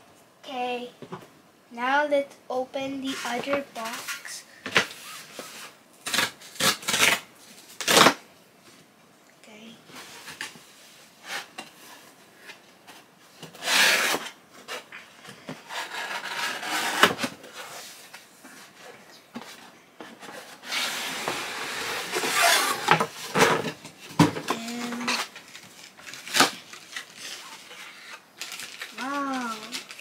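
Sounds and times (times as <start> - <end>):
cardboard flaps scraping: 20.2 - 23.8.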